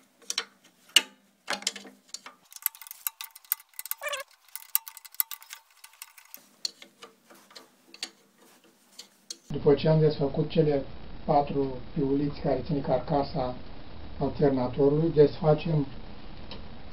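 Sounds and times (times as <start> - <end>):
ratchet wrench clicking: 2.2 - 8.2
brief squeak: 4.0 - 4.3.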